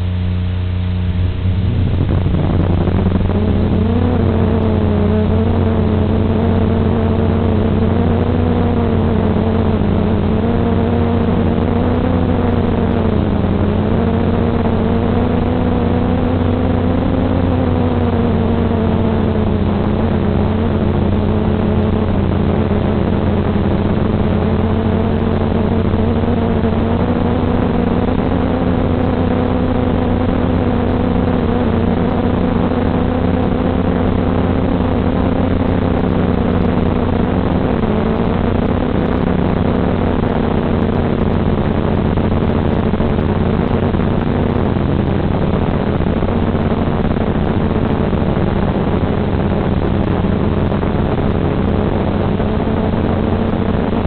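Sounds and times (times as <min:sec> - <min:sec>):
transmitter hum and hiss: 0:00.0 - 0:54.0
drone motors whining: 0:01.0 - 0:40.1.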